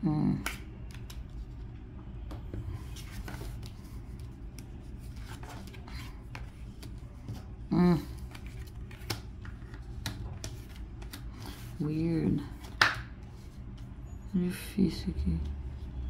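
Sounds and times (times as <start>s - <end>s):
cards tapping and rustling: 2.3s - 11.8s, 12.4s - 13.3s.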